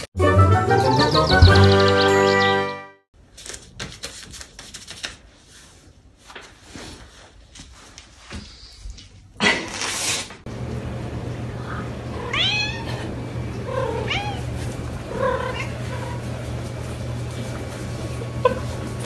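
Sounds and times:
cat meowing: 12.2s - 13.0s, 13.7s - 14.5s.

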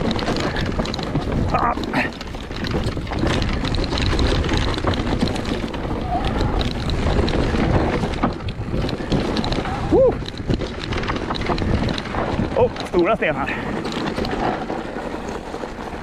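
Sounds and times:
bike rattling knocks: 0.0s - 16.0s
bike tyres rumbling: 0.0s - 16.0s
wind buffeting microphone: 0.0s - 16.0s.

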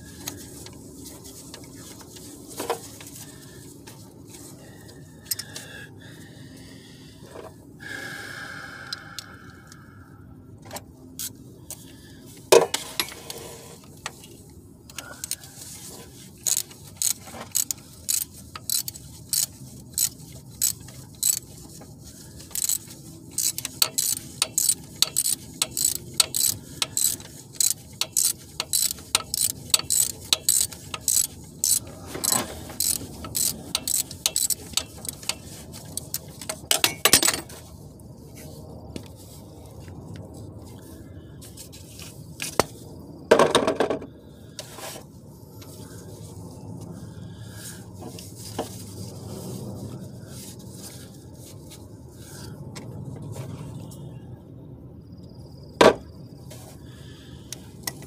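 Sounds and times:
ratchet wrench clicking: 5.2s - 5.6s, 14.9s - 15.5s, 16.4s - 21.7s, 22.4s - 37.4s.

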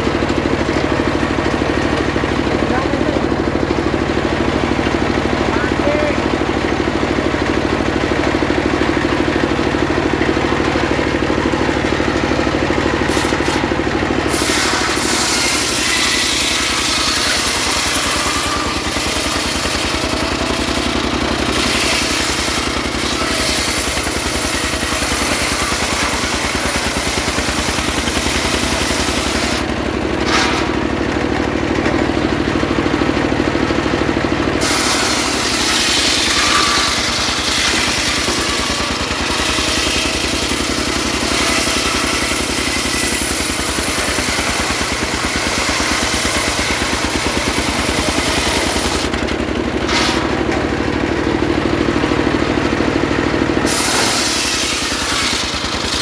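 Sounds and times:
diesel engine running: 0.0s - 56.0s
saw blade ripping through log: 13.0s - 30.8s, 34.6s - 50.4s, 53.6s - 56.0s.

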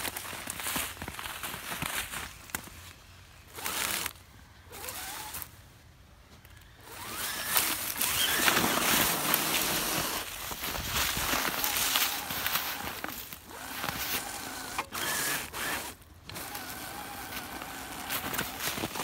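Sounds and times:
crunching of snow and leaves: 0.0s - 19.0s
electric motor whirring: 3.5s - 5.5s, 6.8s - 19.0s.

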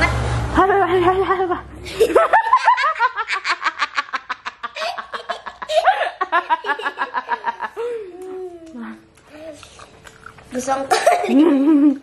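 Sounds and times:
girl giggling: 1.1s - 8.6s, 10.9s - 12.0s.

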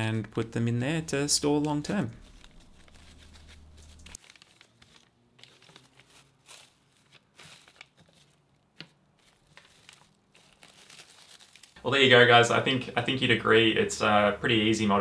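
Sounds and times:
plastic wrap crinkling: 1.4s - 12.4s.

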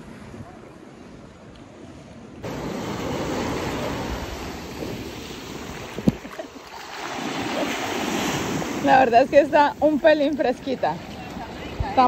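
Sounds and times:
small waves washing ashore: 0.0s - 12.0s
wind on microphone: 2.4s - 6.5s, 7.2s - 12.0s.

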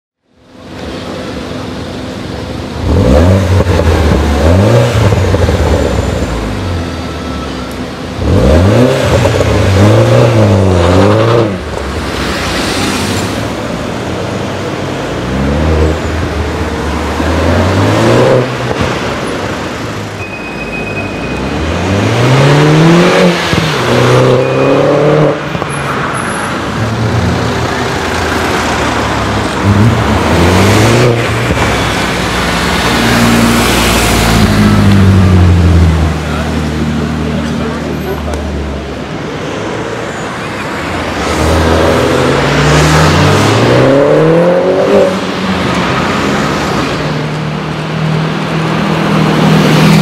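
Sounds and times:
car engine accelerating hard: 2.7s - 6.7s, 8.1s - 13.5s.

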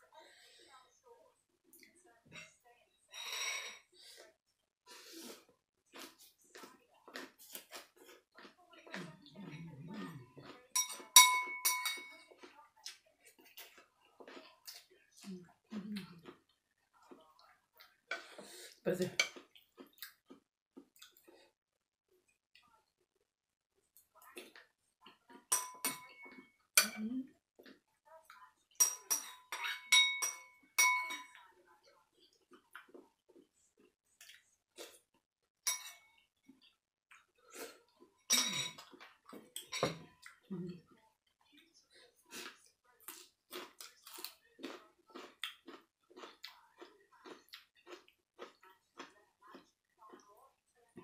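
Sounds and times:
person chewing crunchy vegetables: 5.1s - 10.8s, 12.2s - 21.5s, 32.2s - 35.2s, 42.2s - 50.4s
metal spoon clinking ceramic bowl: 10.7s - 12.3s, 25.5s - 27.0s, 28.8s - 31.4s, 35.7s - 36.1s, 38.3s - 38.8s, 39.6s - 40.1s.

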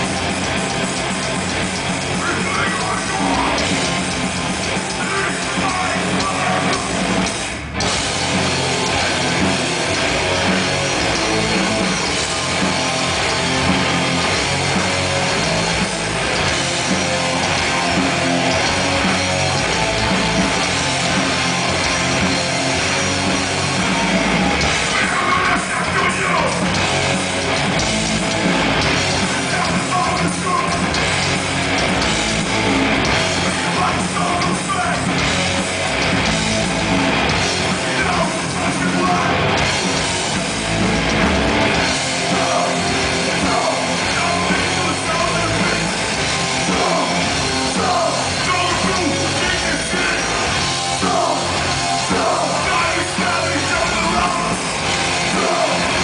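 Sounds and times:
punk band playing live: 0.0s - 56.0s
person singing: 50.9s - 54.6s.

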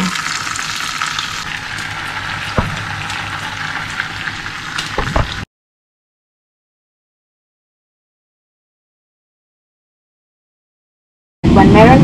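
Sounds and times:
ham sizzling in frying pan: 0.0s - 5.5s.

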